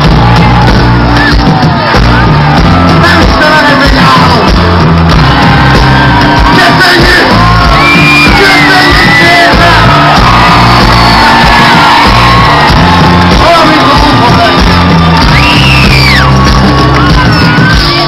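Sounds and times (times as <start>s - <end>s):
live band playing loud: 0.0s - 18.0s
voices shouting and whooping: 5.1s - 18.0s.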